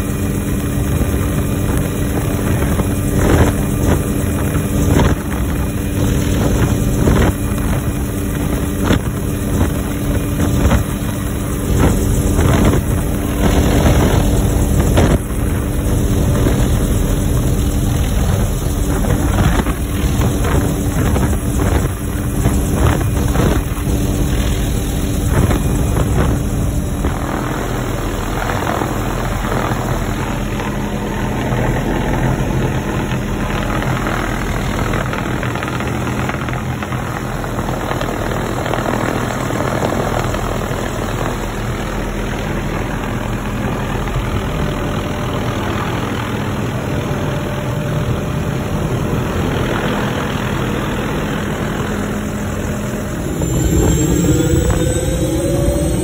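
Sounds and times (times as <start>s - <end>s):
helicopter engine and rotor: 0.0s - 56.0s
air rushing: 51.4s - 56.0s.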